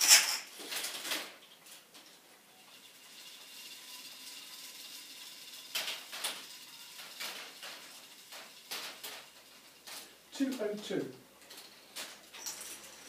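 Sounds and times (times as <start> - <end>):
toy mechanism whirring: 0.0 - 0.6, 2.4 - 10.8.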